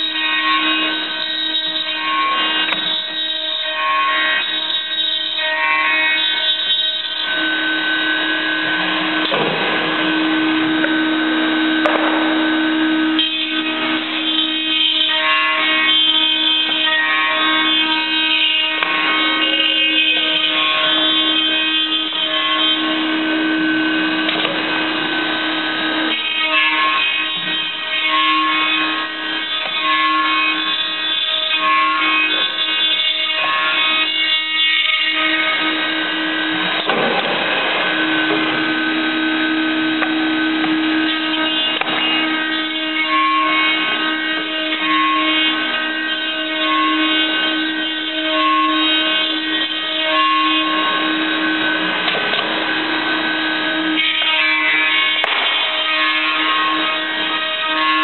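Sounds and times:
machine motors whining: 0.0s - 58.0s.

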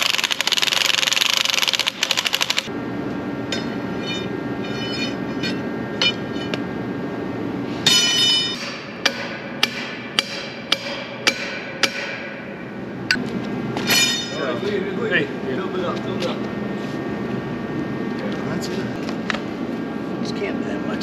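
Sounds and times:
impact wrench hammering: 7.9s - 12.5s
loud metallic clank: 13.8s - 14.5s.

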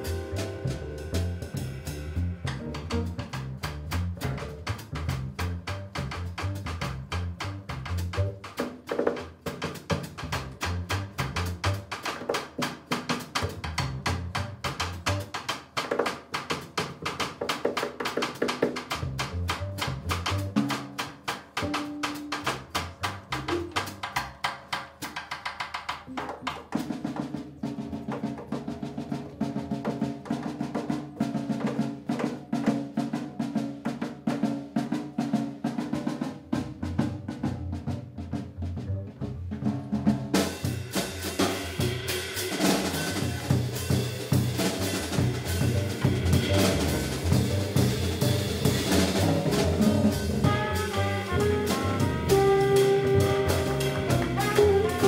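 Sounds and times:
trumpet: 0.0s - 2.3s, 49.8s - 55.0s
upright bass playing: 0.0s - 8.5s, 10.2s - 11.9s, 13.5s - 15.3s, 19.0s - 20.7s, 21.6s - 24.1s, 37.3s - 40.2s, 42.8s - 55.0s
jazz drum solo: 0.0s - 55.0s.

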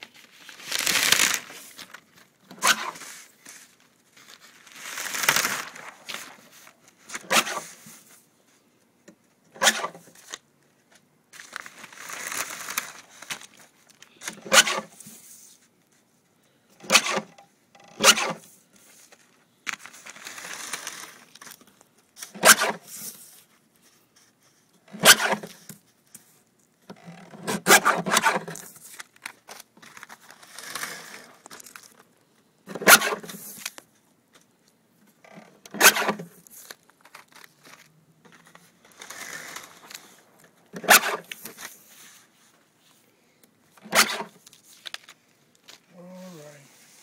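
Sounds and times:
sheets rustling and scraping: 0.0s - 8.6s, 9.7s - 16.0s, 18.7s - 24.6s, 43.8s - 47.0s.

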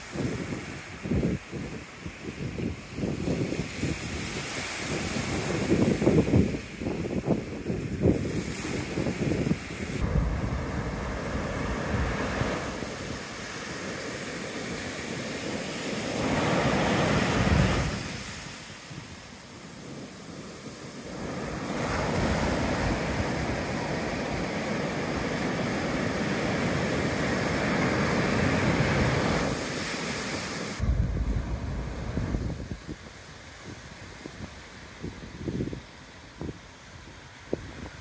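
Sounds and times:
ocean surf breaking on beach: 0.0s - 38.0s
wind rumble on microphone: 0.0s - 38.0s.

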